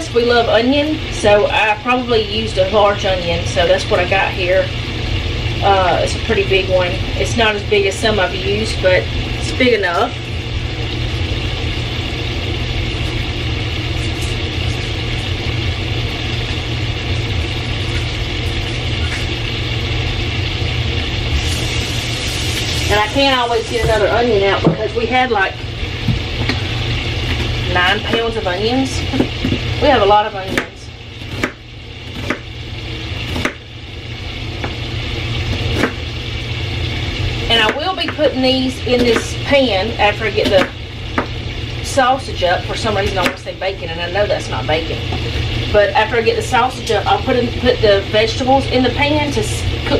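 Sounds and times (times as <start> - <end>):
sausage sizzling in a skillet: 0.0 - 49.9
steady low hum: 0.0 - 49.9
knife chopping onion on wood: 31.3 - 31.6, 32.2 - 32.5, 33.3 - 33.6, 35.7 - 36.0, 40.4 - 41.4.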